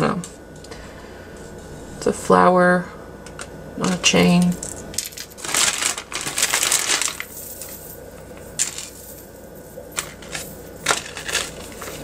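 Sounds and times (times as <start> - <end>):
metal chain clinking: 4.5 - 12.0
plastic bag crinkling: 4.6 - 12.0.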